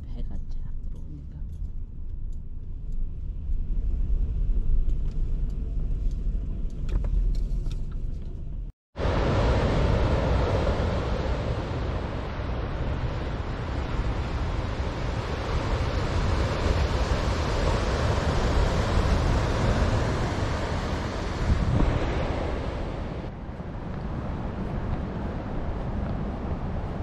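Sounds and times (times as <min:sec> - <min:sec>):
ocean surf breaking: 0:09.0 - 0:27.0
wind buffeting microphone: 0:09.0 - 0:27.0.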